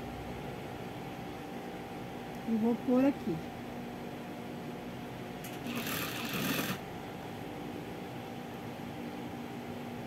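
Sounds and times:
faint steady hum: 0:00.0 - 0:10.0
sewing machine stitching: 0:05.4 - 0:06.8.

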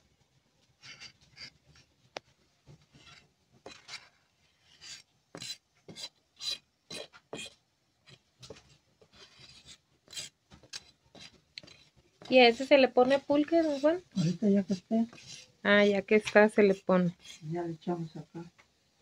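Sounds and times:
knife scraping leaf: 0:02.9 - 0:15.6, 0:17.1 - 0:17.5.

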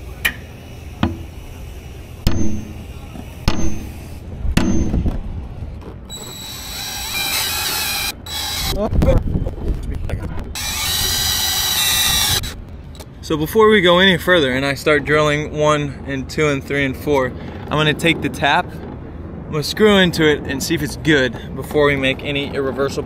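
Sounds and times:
cordless drill whining: 0:06.1 - 0:08.8, 0:10.6 - 0:12.6.

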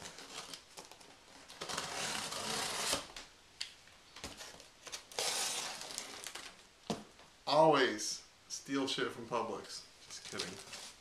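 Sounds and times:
box cutter slitting tape: 0:01.6 - 0:03.1, 0:05.1 - 0:06.3.

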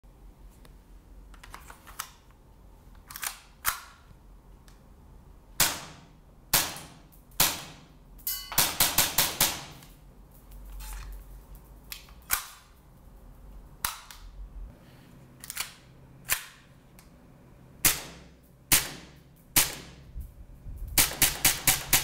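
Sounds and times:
airsoft pistol shots: 0:05.6 - 0:07.9, 0:17.8 - 0:20.0.

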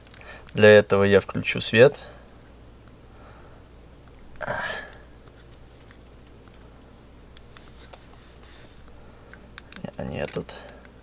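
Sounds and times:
breathy vocal noise: 0:04.4 - 0:05.1.

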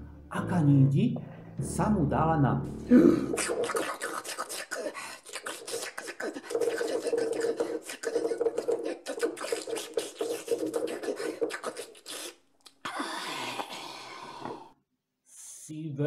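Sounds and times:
person making slurping noises: 0:03.0 - 0:14.7.

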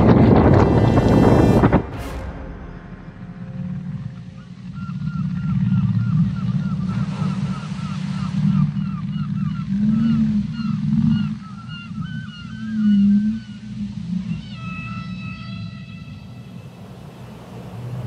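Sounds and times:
steady low hum: 0:00.0 - 0:04.6
whale chirps: 0:04.3 - 0:18.0.

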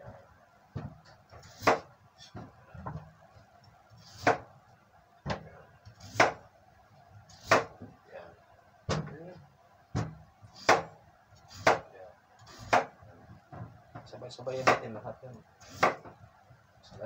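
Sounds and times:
knife slicing potato on board: 0:01.4 - 0:01.9, 0:04.0 - 0:04.5, 0:05.9 - 0:06.4, 0:07.3 - 0:07.8, 0:10.6 - 0:10.9, 0:11.5 - 0:12.9, 0:15.6 - 0:16.0.

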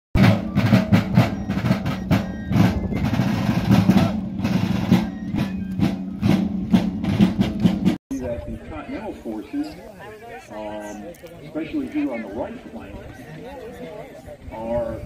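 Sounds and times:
snare drums beating with rolls: 0:00.2 - 0:08.0.

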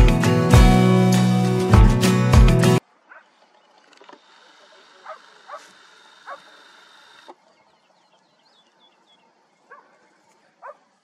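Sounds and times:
dogs barking: 0:03.0 - 0:03.4, 0:04.7 - 0:06.7, 0:09.6 - 0:10.9.

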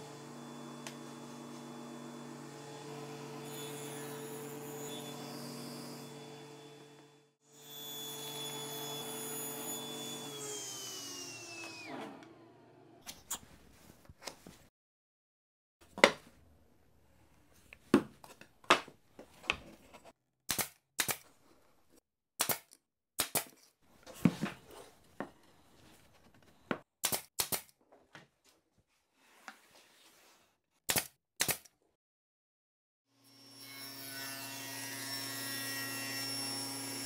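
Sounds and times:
nail gun firing sharp pops: 0:20.5 - 0:21.2, 0:22.4 - 0:23.5, 0:27.0 - 0:27.7.

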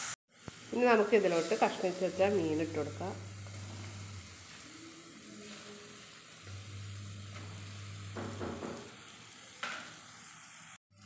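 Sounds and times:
food sizzling in a clay pot: 0:00.0 - 0:11.0
sharp knock: 0:08.2 - 0:08.8.

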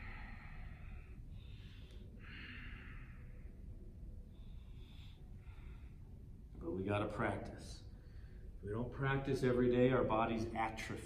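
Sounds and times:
man breathing deeply: 0:00.0 - 0:06.5, 0:07.9 - 0:08.6.

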